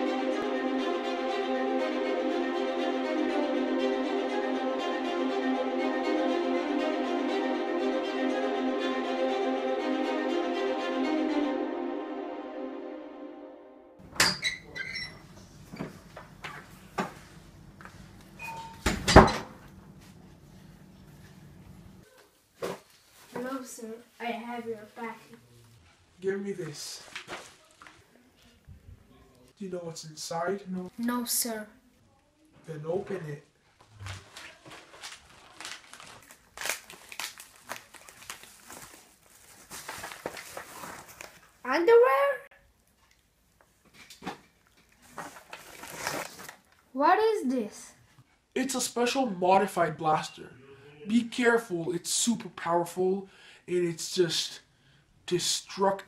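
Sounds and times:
paper mailer crinkling: 34.0 - 41.6, 45.2 - 46.7.

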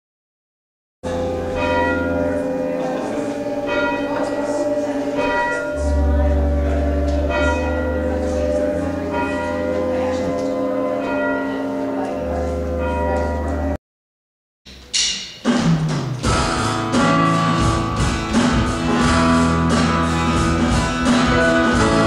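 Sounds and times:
bells chiming a tune: 1.1 - 13.8
held low bass notes: 16.2 - 22.0.

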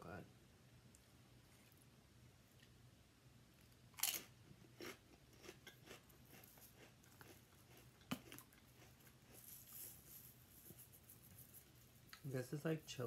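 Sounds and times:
crunchy chewing of chips: 3.6 - 10.6
seasoning shaker hiss: 9.4 - 13.0.

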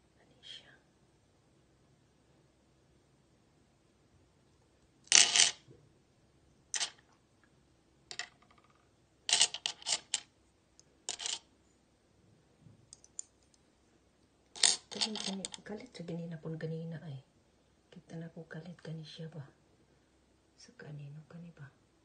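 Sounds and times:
stones clinking on glass: 5.1 - 5.6, 6.8 - 7.0, 14.6 - 15.6.

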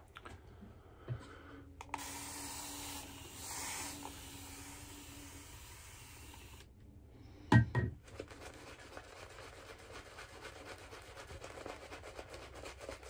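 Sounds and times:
shaving brush rubbing lather: 8.2 - 13.0.

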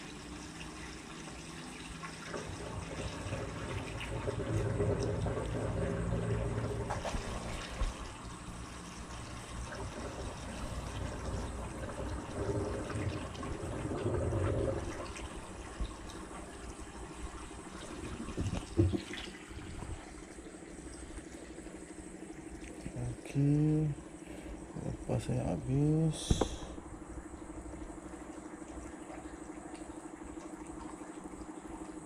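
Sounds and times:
washing machine drum spinning: 0.0 - 20.1
water splashing and draining: 0.0 - 32.0.

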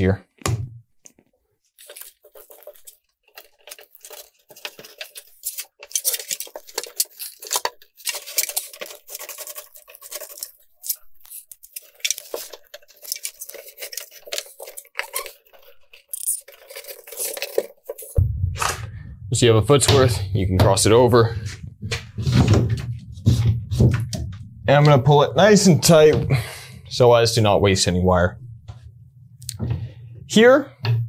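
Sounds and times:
cable rustling and scraping: 1.0 - 18.2.

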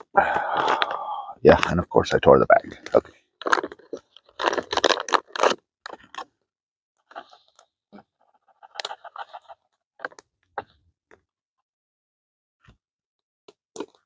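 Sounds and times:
foil bag crinkling: 2.7 - 6.3.

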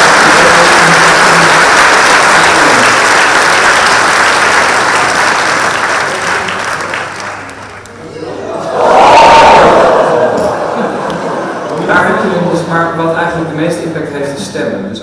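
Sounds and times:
audience applauding: 0.0 - 11.9.

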